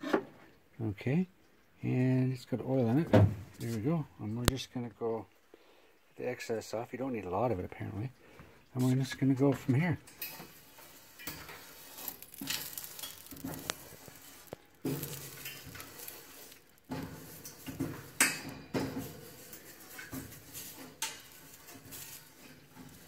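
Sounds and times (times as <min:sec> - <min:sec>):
potato scraping grill grates: 0:10.2 - 0:23.0
fork clinking on metal rods: 0:11.2 - 0:23.0.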